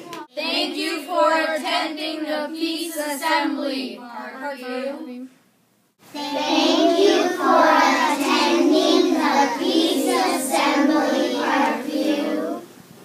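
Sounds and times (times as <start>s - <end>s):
children singing in unison: 6.2s - 12.7s.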